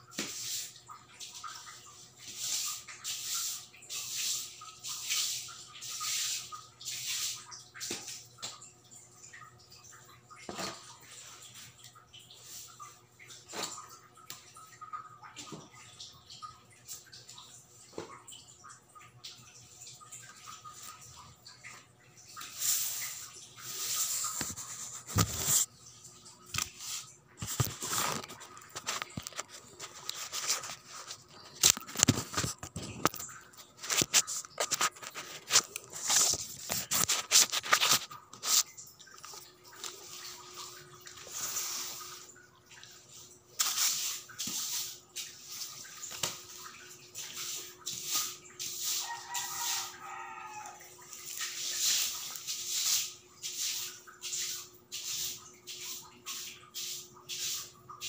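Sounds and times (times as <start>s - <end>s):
objects rustling and knocking: 24.0s - 25.7s, 26.5s - 40.4s.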